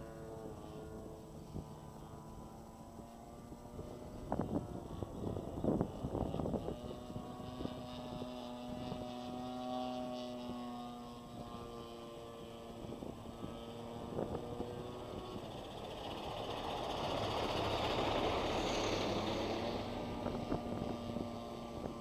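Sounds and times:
model plane engine droning: 0:00.0 - 0:22.0
wind gusts on microphone: 0:03.6 - 0:09.3, 0:12.7 - 0:22.0.

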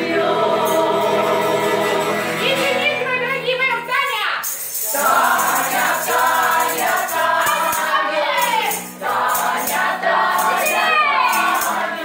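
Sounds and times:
group singing in chorus: 0:00.0 - 0:02.4, 0:04.8 - 0:12.0
tambourine jingles: 0:04.0 - 0:12.0.

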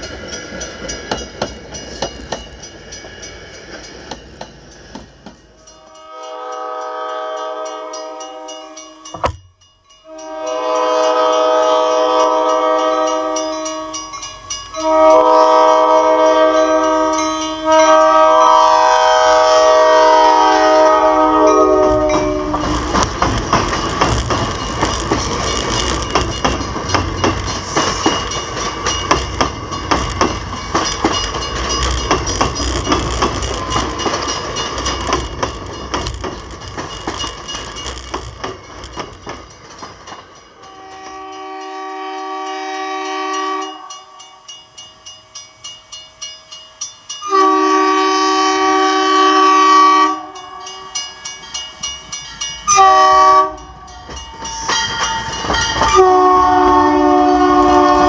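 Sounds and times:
crossing bell dinging: 0:00.0 - 0:58.0
train rumbling over rails: 0:00.0 - 0:58.0
train air horn blasts: 0:05.7 - 0:09.2, 0:10.0 - 0:23.0, 0:40.6 - 0:44.3, 0:47.2 - 0:50.9, 0:52.7 - 0:53.7, 0:55.9 - 0:58.0.

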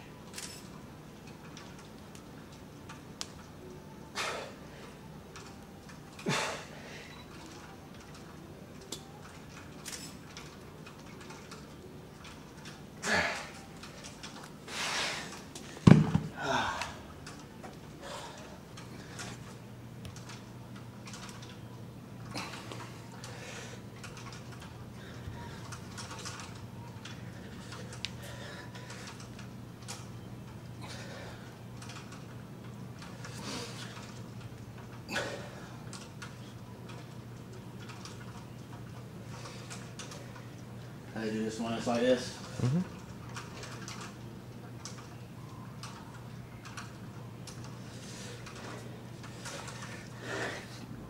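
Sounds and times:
breathing: 0:28.2 - 0:29.2, 0:49.4 - 0:50.8.

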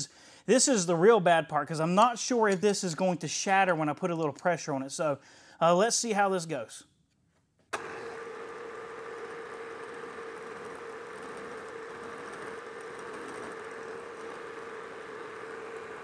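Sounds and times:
milling machine humming: 0:07.8 - 0:16.0.

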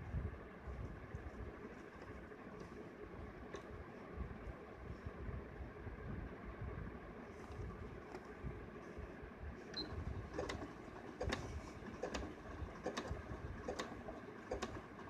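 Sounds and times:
sewing machine motor hum: 0:09.6 - 0:15.0
sewing machine clicking: 0:09.7 - 0:15.0.

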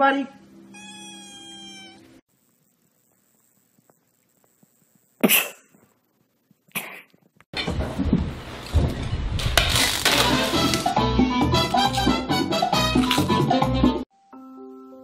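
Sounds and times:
kitten sneezing: 0:05.2 - 0:05.6.

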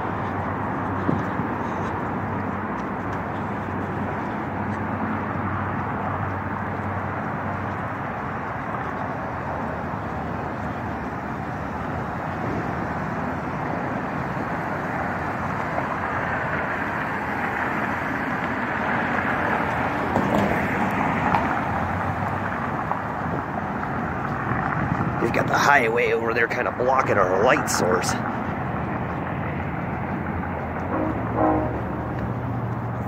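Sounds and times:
road traffic noise: 0:00.0 - 0:33.0
car passing close by: 0:28.0 - 0:33.0.

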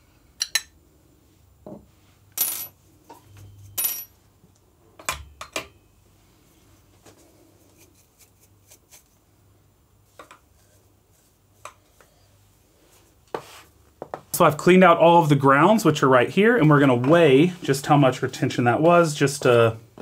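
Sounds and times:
brushing coffee grounds: 0:06.6 - 0:09.3.

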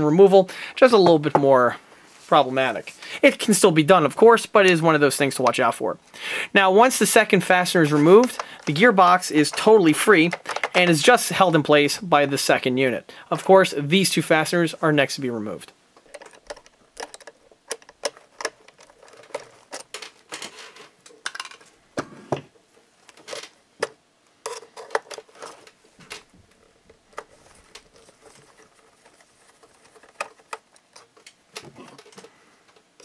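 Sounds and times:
screwdriver and metal parts clicking: 0:16.0 - 0:21.6.

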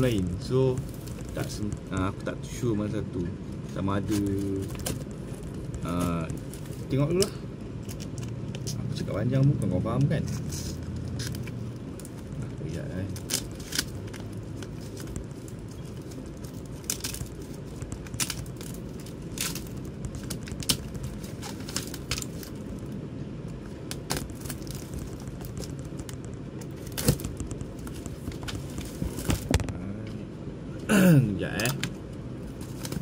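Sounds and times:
packing tape peeling off cardboard: 0:13.1 - 0:22.6, 0:23.8 - 0:29.6.

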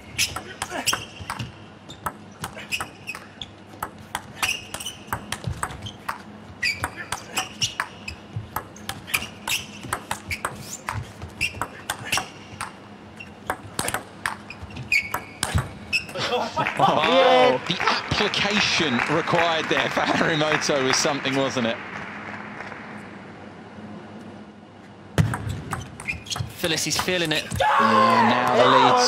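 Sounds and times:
ping pong ball clicking: 0:03.8 - 0:06.2, 0:15.0 - 0:15.7
shoes squeaking on floor: 0:04.3 - 0:13.4, 0:14.2 - 0:16.2, 0:25.5 - 0:26.6.

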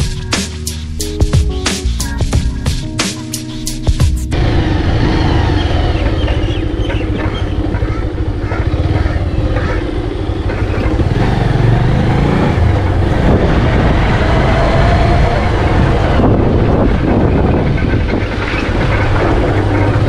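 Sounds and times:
motorcycle engine running: 0:03.9 - 0:20.0
wind rumbling on microphone: 0:04.3 - 0:20.0.

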